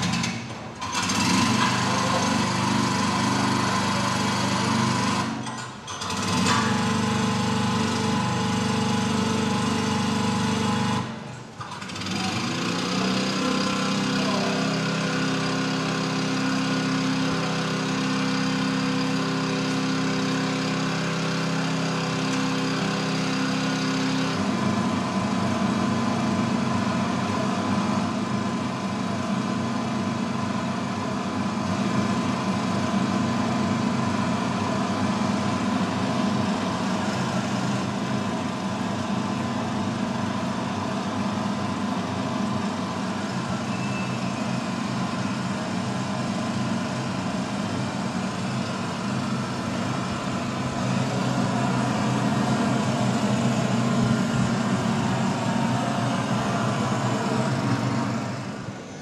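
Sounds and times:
engine starting up: 0.0s - 25.0s
petrol generator droning: 0.0s - 59.0s.

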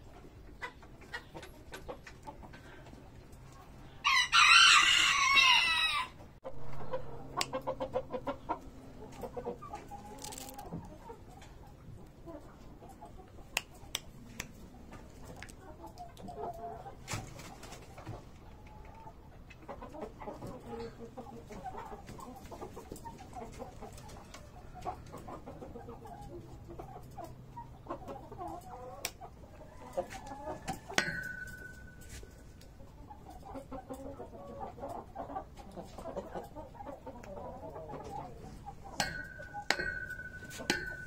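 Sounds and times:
chickens clucking: 0.0s - 41.0s
chicken high call: 4.0s - 8.6s.

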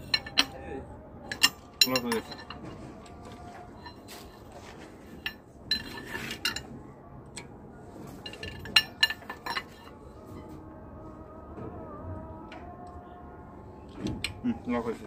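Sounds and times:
metallic clinks of breaker bar: 1.3s - 2.6s, 8.2s - 9.9s.

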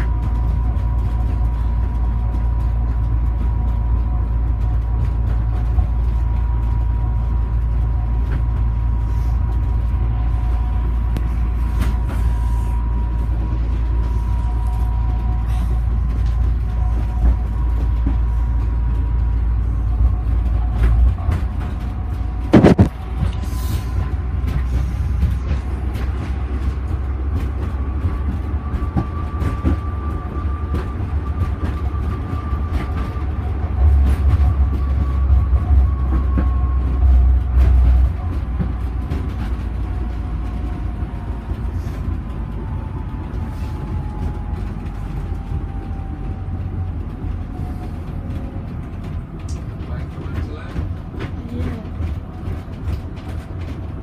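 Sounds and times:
low rumble of vehicle: 0.0s - 54.0s
loud knock: 22.5s - 22.9s.

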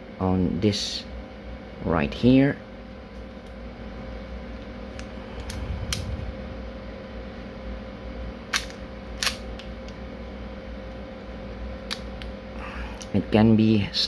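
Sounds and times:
pistol mechanism clicking: 8.5s - 9.7s.

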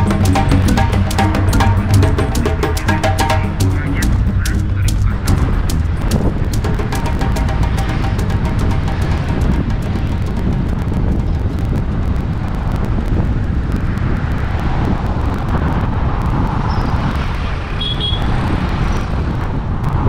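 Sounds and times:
tyre and engine rumble: 0.0s - 13.7s
wind buffeting microphone: 4.2s - 6.9s, 8.4s - 20.0s.

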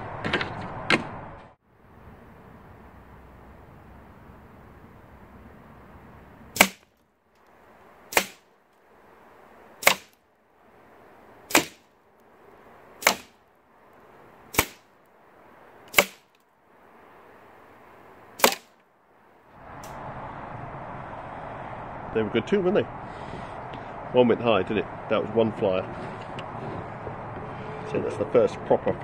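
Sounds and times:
air rifle shots: 6.6s - 6.9s, 8.1s - 8.5s, 9.8s - 10.2s, 11.5s - 11.8s, 13.0s - 13.4s, 14.5s - 14.9s, 15.9s - 16.3s, 18.4s - 18.8s.

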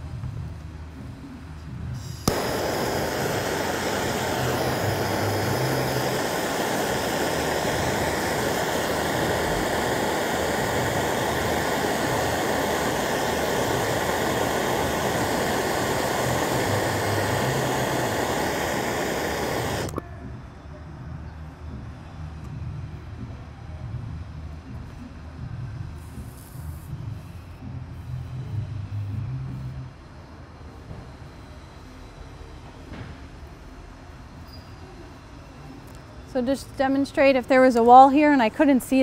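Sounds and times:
gas torch hissing: 1.9s - 20.0s
torch lighting pop: 2.0s - 20.0s.

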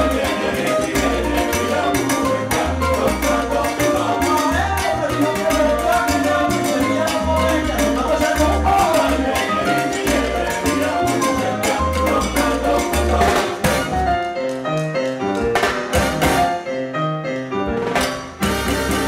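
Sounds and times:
deep bass: 0.0s - 14.2s
latin percussion: 0.0s - 19.0s
trombones: 8.7s - 14.3s, 15.9s - 16.7s, 18.4s - 19.0s.

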